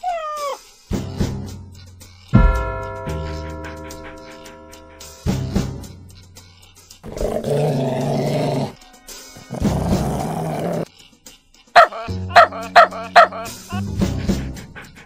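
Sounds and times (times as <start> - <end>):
music: 0.0 - 15.0
dog barking: 11.8 - 13.5.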